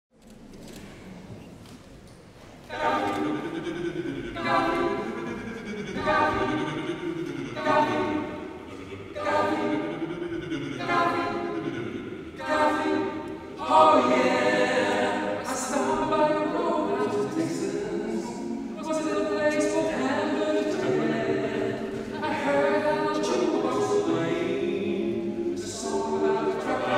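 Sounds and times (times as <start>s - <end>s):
men singing a cappella harmony: 2.7s - 26.9s.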